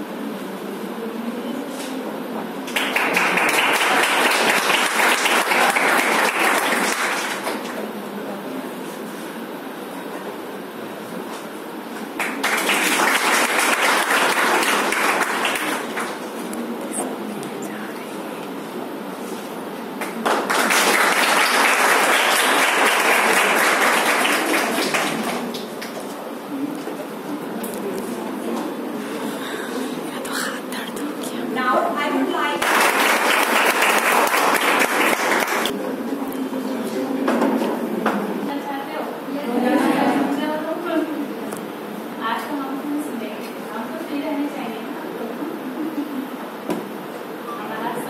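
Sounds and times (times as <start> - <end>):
students applauding: 2.7 - 7.8, 12.1 - 16.5, 20.0 - 26.2, 32.6 - 35.7.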